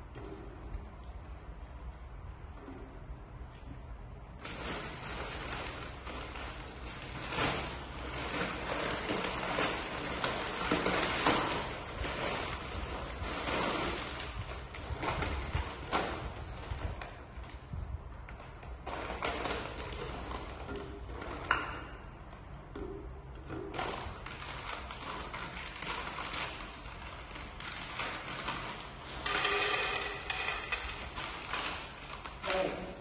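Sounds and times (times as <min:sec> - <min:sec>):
plastic packet crinkling: 0:04.4 - 0:16.6, 0:18.4 - 0:21.4, 0:23.7 - 0:32.9.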